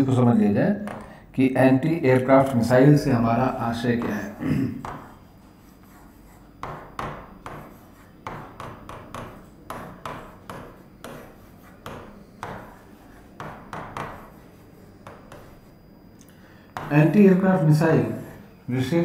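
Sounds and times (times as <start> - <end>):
pen writing on a board: 4.0 - 15.9, 16.7 - 17.2.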